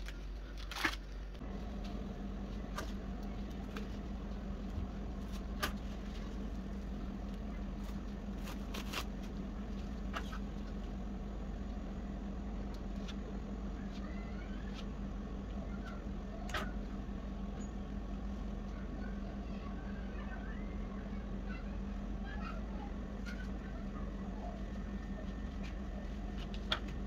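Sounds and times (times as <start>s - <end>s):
low hum: 0.0s - 27.0s.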